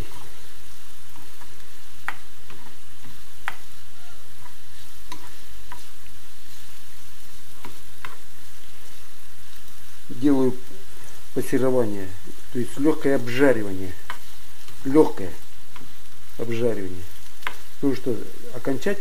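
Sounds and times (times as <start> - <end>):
vegetables sizzling in oil: 0.0 - 19.0
spatula scraping a pan: 2.4 - 9.7.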